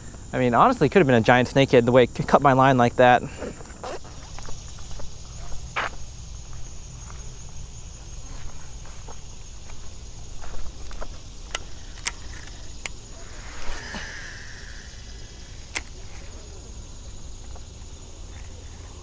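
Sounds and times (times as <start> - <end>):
reel spool whining: 10.9 - 16.9
sharp reel clicks: 11.5 - 16.3
fishing cast whoosh: 13.1 - 16.2.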